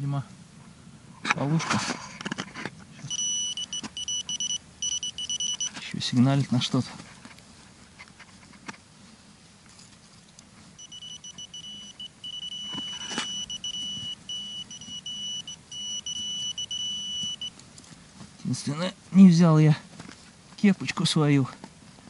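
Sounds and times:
metal detector pinpointer tone: 0:03.1 - 0:05.9, 0:10.8 - 0:17.6.

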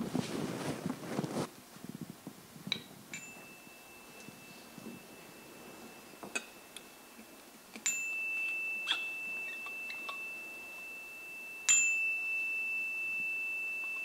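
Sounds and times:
metal chime ringing: 0:03.1 - 0:14.0.

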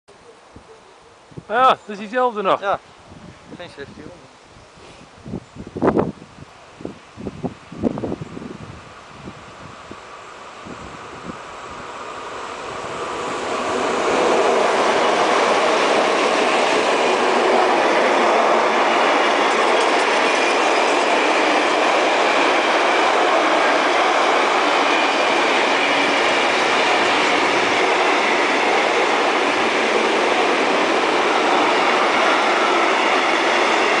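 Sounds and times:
diesel locomotives passing: 0:07.5 - 0:34.0
train wheels rattling on rails: 0:11.3 - 0:34.0.

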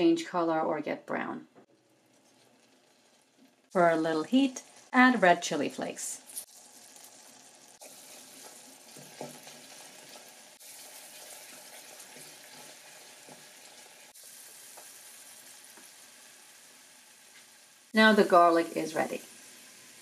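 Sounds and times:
butter sizzling quietly: 0:01.6 - 0:20.0
wooden spoon stirring: 0:01.9 - 0:03.6.

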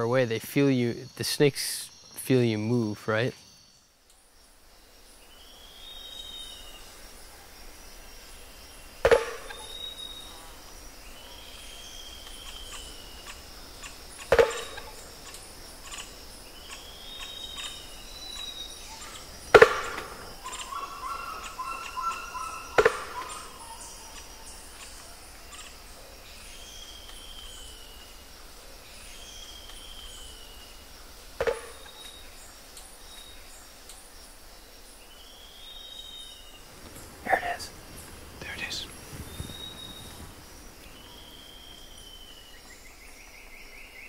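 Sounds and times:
birds whistling: 0:16.4 - 0:25.0, 0:35.4 - 0:43.4
sharp knocks: 0:31.4 - 0:31.8.

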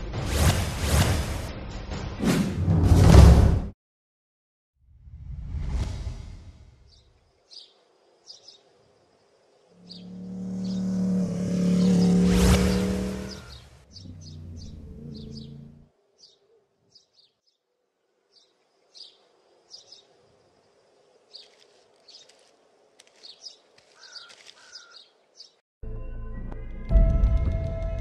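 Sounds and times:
small birds chirping: 0:06.9 - 0:25.6.

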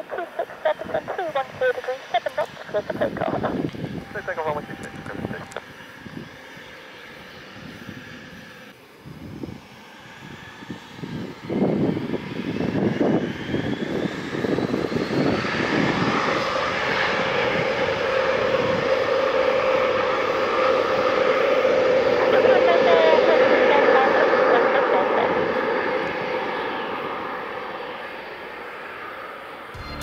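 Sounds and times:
aircraft engines whining: 0:00.0 - 0:30.0.

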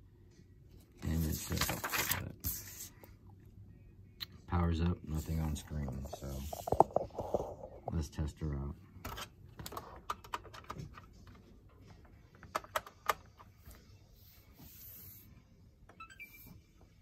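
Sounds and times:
hands handling console and cables: 0:05.3 - 0:08.0, 0:09.0 - 0:13.8.

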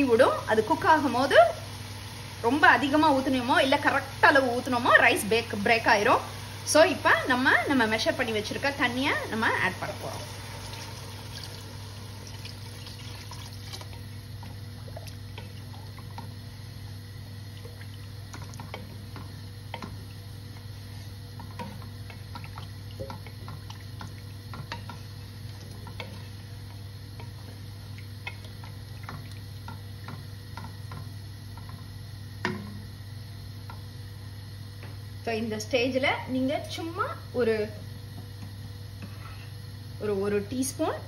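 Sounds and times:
water pouring into pot: 0:10.2 - 0:16.3
spatula stirring liquid: 0:17.3 - 0:32.0.

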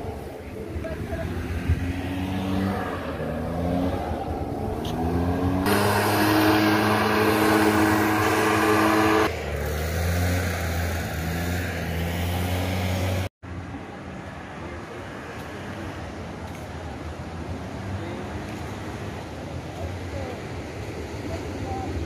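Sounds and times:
leaf blower engine running: 0:05.2 - 0:13.2.

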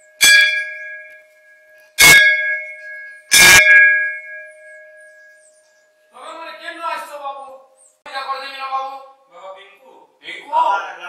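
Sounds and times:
brass bell ringing: 0:00.0 - 0:05.6.

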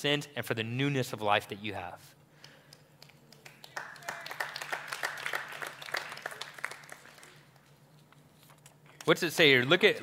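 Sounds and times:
crowd applauding: 0:03.4 - 0:07.5.

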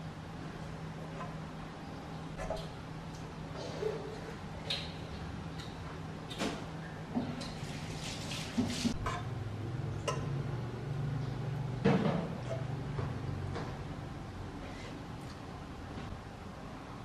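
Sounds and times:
steady low hum: 0:00.0 - 0:07.4.

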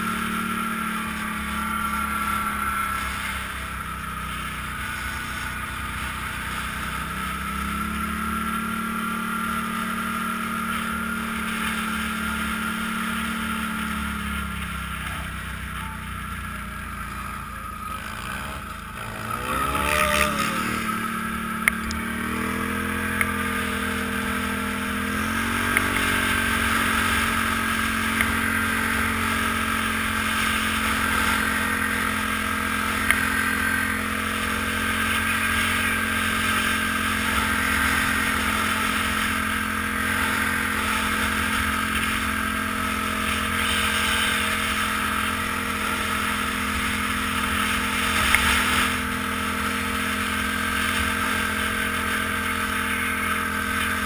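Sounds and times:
atv engine revving: 0:00.0 - 0:54.0
steady rushing noise: 0:16.6 - 0:54.0.

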